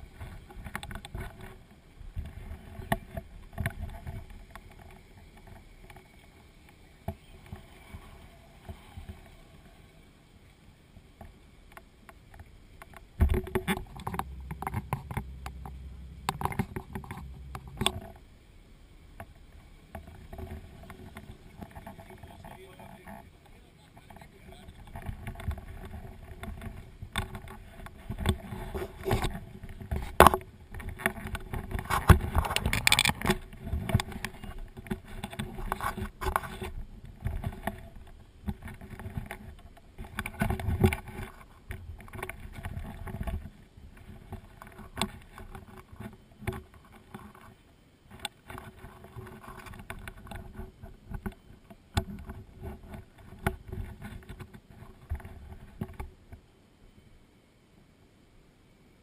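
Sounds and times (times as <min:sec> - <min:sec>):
faint steady hum: 0:00.0 - 0:59.0
knocks and thumps of gear: 0:24.9 - 0:37.8.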